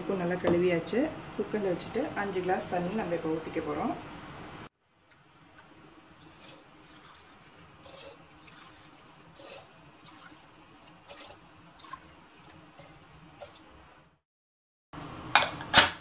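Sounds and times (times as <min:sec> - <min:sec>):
water pouring into a pot: 0:05.0 - 0:14.2.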